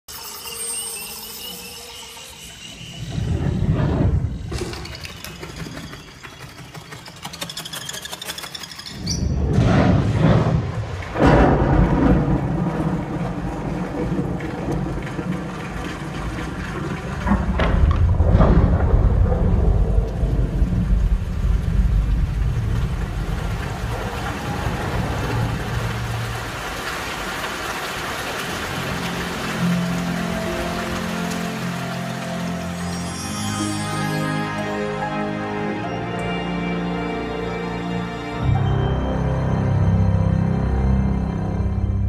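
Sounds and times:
jungle chirps: 0.1s - 9.4s
loud thunder claps: 9.4s - 26.8s
steady rain: 9.6s - 41.9s.

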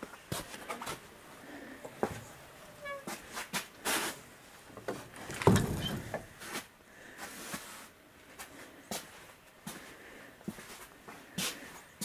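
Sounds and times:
door knocks scrapes and rattles: 4.8s - 6.4s
door thump: 5.2s - 6.3s.

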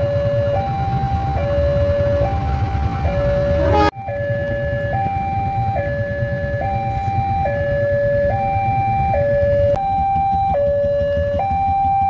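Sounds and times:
two-tone level crossing alarm: 0.0s - 12.0s
low rumble: 1.1s - 10.0s.

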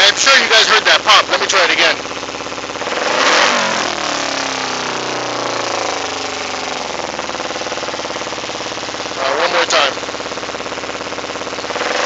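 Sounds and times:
motorcycle engine revving and idling: 0.0s - 12.0s.

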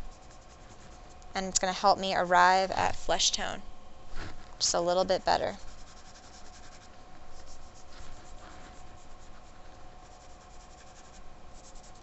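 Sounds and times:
pastel scratching on paper: 0.0s - 1.2s, 5.5s - 12.0s.

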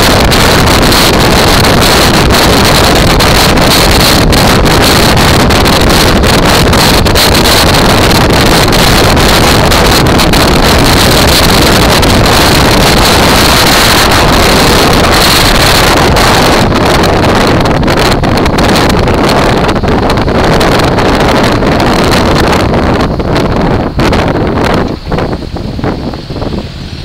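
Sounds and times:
motorcycle engine: 0.0s - 26.8s
road noise: 0.0s - 27.0s
wind rush on microphone: 0.0s - 27.0s.

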